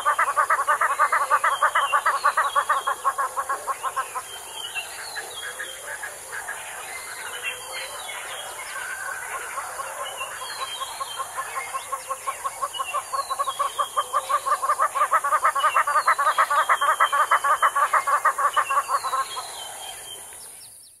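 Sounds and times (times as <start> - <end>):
hornbill calling repeated notes: 0.0 - 6.6, 9.0 - 19.7.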